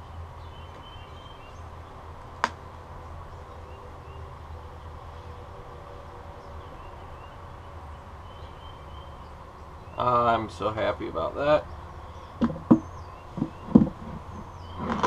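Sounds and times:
low outdoor hum: 0.0 - 15.0
metal knock on wood: 12.4 - 14.2.

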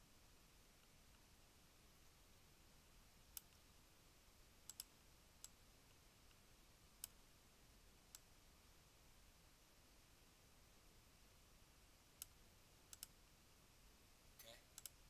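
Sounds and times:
computer mouse clicking: 3.3 - 3.6, 4.7 - 5.6, 12.2 - 13.2, 14.8 - 15.0.

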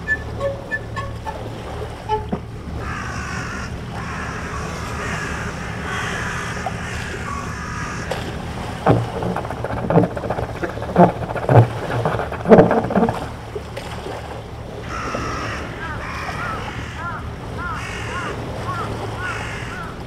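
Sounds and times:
boat engine droning: 0.0 - 20.0
loud rough engine bursts: 2.5 - 13.5.

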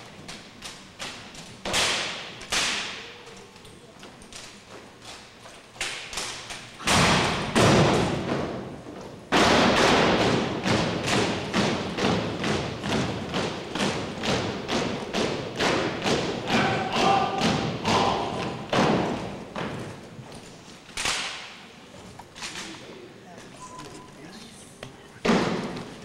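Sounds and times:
heavy thuds: 6.8 - 20.3
feet stamping on gym floor: 6.9 - 20.6.

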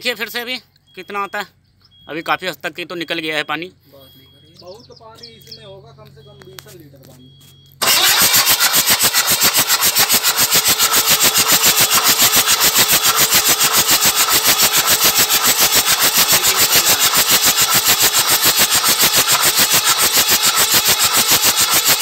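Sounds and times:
diesel engine cranking: 7.7 - 22.0.

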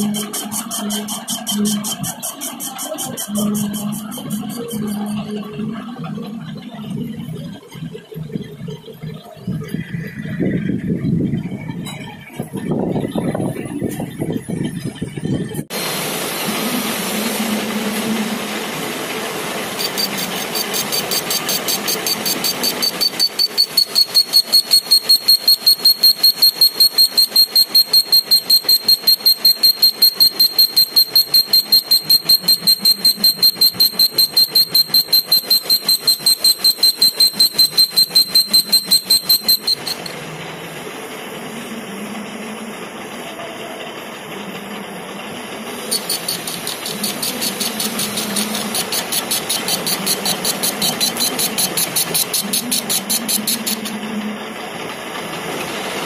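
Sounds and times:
lathe cutting metal whistle: 0.0 - 5.6, 19.7 - 40.2, 45.8 - 54.0
lathe running: 15.9 - 56.0.

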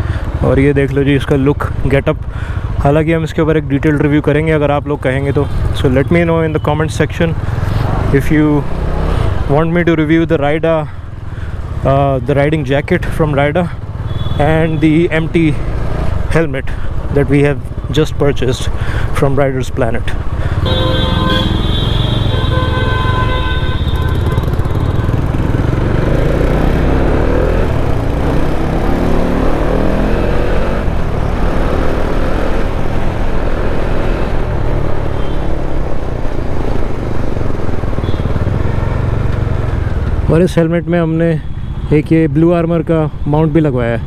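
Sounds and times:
motorcycle engine accelerating: 20.7 - 34.6.

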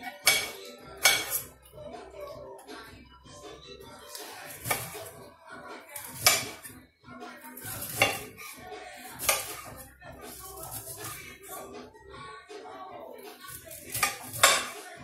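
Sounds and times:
knife cutting broccoli: 0.0 - 1.5, 4.1 - 5.1, 6.0 - 6.7, 7.5 - 11.2, 13.4 - 14.8
knife clacking on stone board: 0.1 - 1.4, 4.6 - 5.0, 6.0 - 6.7, 7.8 - 8.3, 9.2 - 9.7, 13.9 - 14.8.

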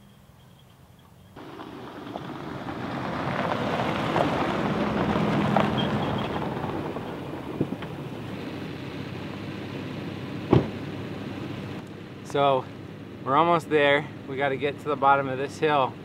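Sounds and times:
pickup engine running: 0.2 - 16.0
tyres crunching over gravel: 1.4 - 8.6.

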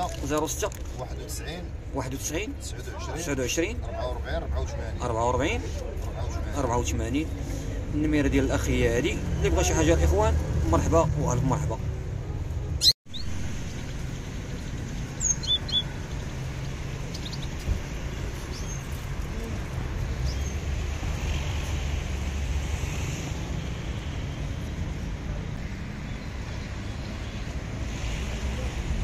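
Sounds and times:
songbirds chirping: 12.8 - 21.2.

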